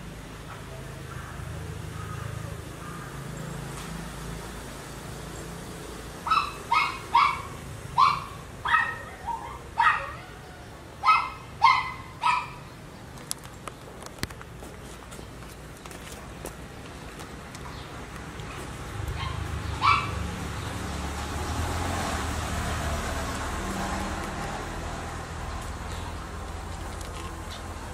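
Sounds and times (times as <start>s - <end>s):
small dog yapping: 6.3s - 10.4s, 11.0s - 12.6s, 19.1s - 20.2s.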